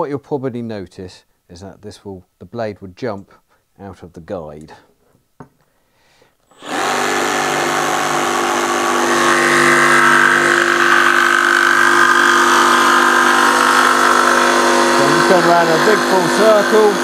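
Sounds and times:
jigsaw cutting wood: 6.5 - 17.0.

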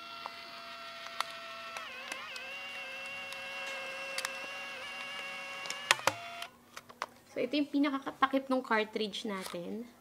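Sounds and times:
camera eject motor whirring: 0.0 - 6.5.

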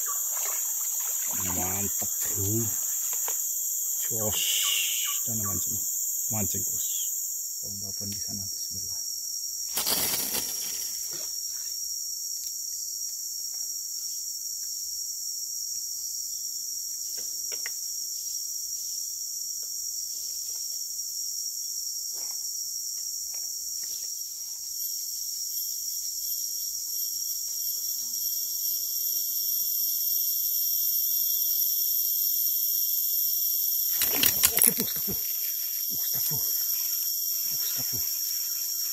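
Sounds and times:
higher-pitched insect drone: 0.0 - 9.0, 25.6 - 38.9
chorus of forest insects: 0.0 - 38.9.

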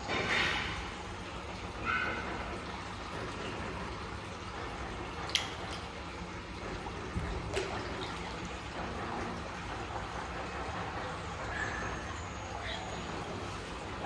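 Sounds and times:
water splashing and sloshing: 0.0 - 14.0
sharp splashes: 7.2 - 8.8.

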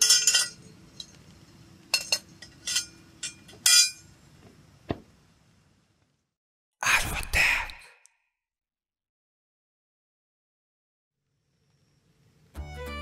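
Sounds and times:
pot clinking on metal stove: 0.0 - 1.2, 1.9 - 4.0.

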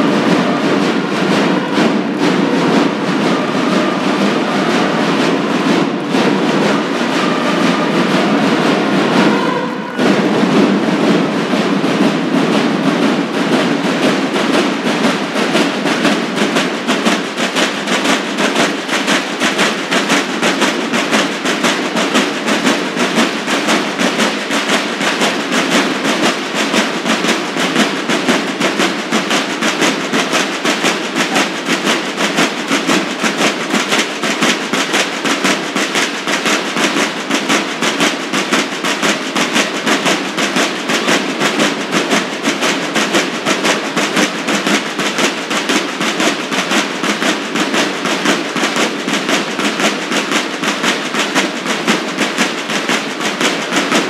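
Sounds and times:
drums playing fast beat: 0.0 - 54.0.

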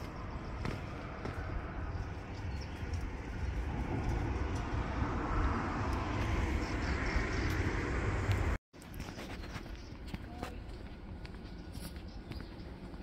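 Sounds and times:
low city rumble: 0.0 - 13.0.

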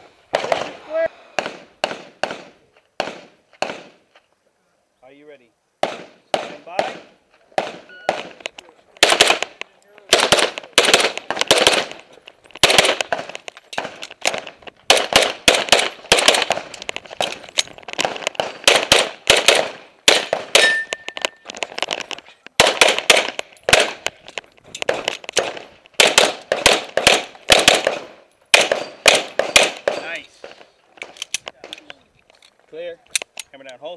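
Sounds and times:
handgun fired rapidly: 14.9 - 16.6.

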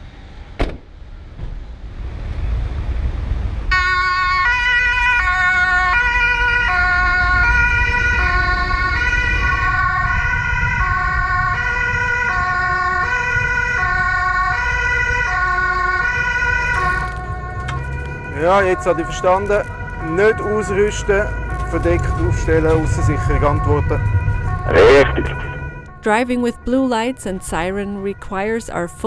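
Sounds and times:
two-tone police siren: 3.7 - 29.0
car driving rumble: 15.9 - 28.9.

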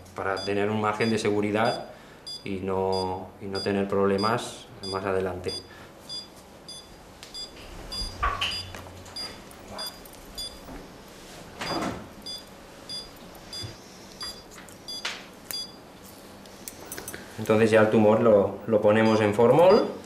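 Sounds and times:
monitor beeping: 0.3 - 10.8, 11.6 - 15.8, 18.8 - 20.0.

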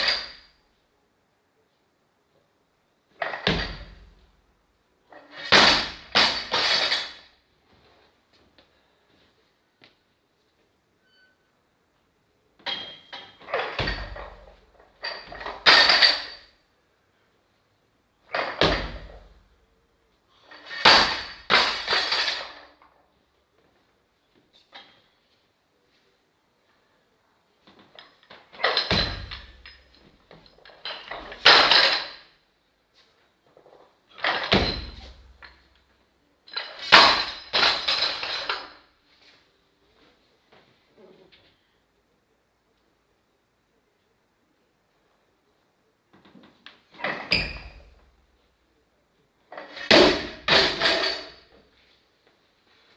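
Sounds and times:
weight plates rattling: 5.2 - 7.3, 12.7 - 16.5, 20.5 - 22.7, 28.6 - 32.3, 34.2 - 35.7, 36.5 - 38.8, 49.5 - 51.5.

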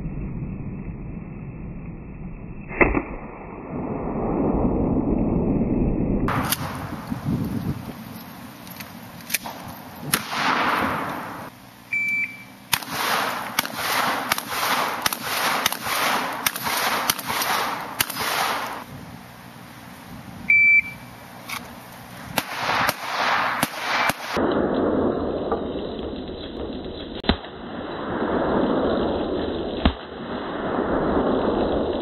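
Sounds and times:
handgun shots with echo: 9.3 - 11.5, 12.7 - 18.8
shot timer short high beep: 11.9 - 12.6, 20.5 - 21.1.

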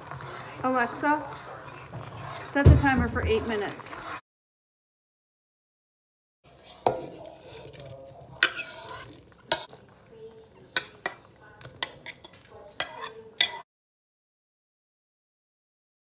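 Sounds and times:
stirring in a pot: 0.0 - 4.2, 6.4 - 13.6
utensil clinking against pot: 6.6 - 9.8, 10.7 - 13.6.

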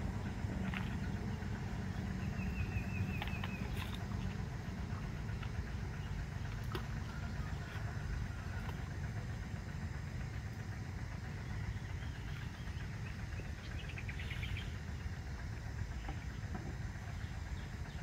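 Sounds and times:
steady low rumble: 0.0 - 18.0
bird chirping: 1.9 - 4.0.

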